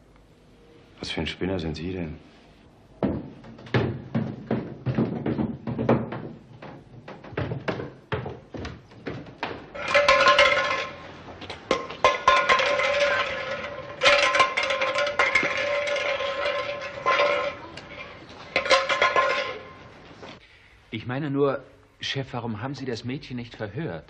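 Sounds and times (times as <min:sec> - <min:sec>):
footsteps on wooden stairs: 0:03.0 - 0:09.8.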